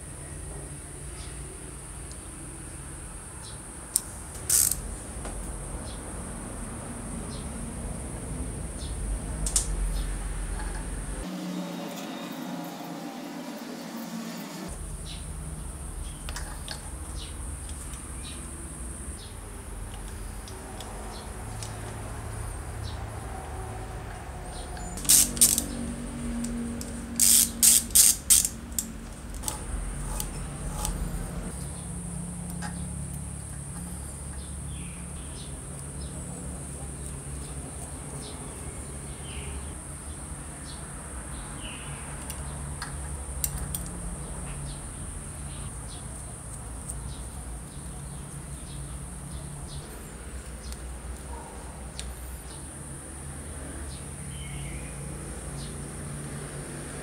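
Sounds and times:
screwdriver and screws clicking on metal: 4.0 - 4.8, 24.8 - 25.8, 26.4 - 31.1, 42.2 - 44.0.

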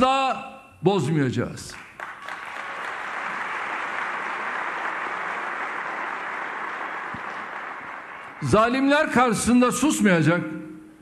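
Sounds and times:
large audience applauding: 1.8 - 9.2.

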